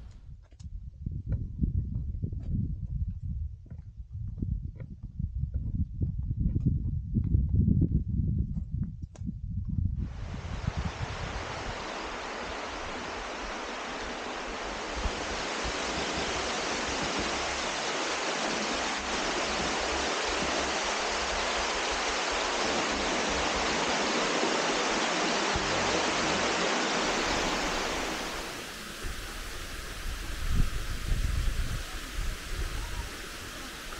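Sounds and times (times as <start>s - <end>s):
mountain stream rushing: 10.1s - 33.9s.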